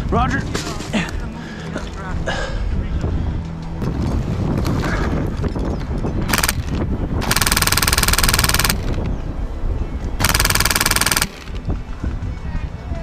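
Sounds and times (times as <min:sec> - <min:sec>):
airsoft gun automatic bursts: 0:06.3 - 0:09.0, 0:10.2 - 0:11.6.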